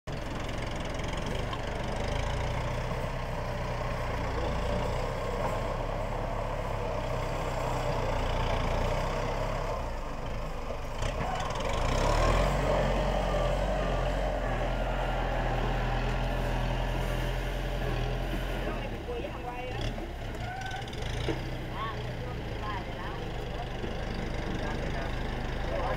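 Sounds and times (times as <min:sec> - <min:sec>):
tractor engine running: 0:00.1 - 0:25.9.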